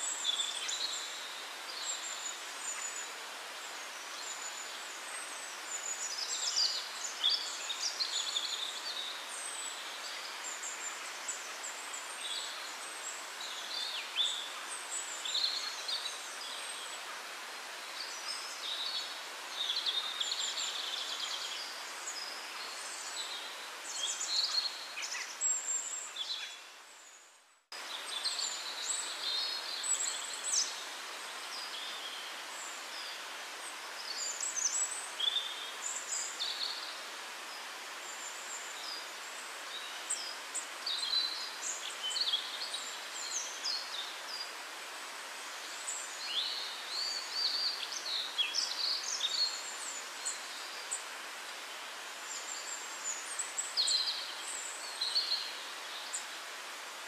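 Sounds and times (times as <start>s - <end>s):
small birds chirping: 0.0s - 57.0s
steady outdoor hiss: 0.0s - 57.0s.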